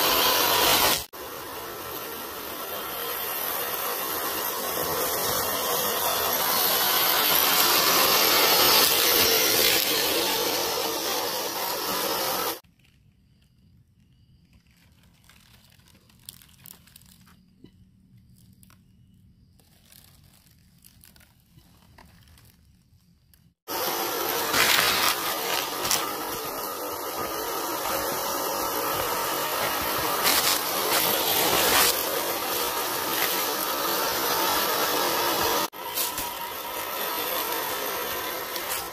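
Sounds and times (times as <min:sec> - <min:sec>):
small electric motor buzzing: 0:00.0 - 0:12.6, 0:23.7 - 0:38.9
tyres crunching dry leaves: 0:14.4 - 0:17.6, 0:19.6 - 0:38.9.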